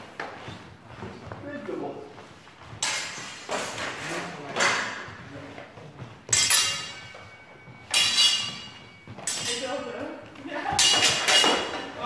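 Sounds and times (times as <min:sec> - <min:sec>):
swords and bucklers clashing: 0:02.8 - 0:05.1, 0:06.3 - 0:07.3, 0:07.9 - 0:09.9, 0:10.7 - 0:12.0.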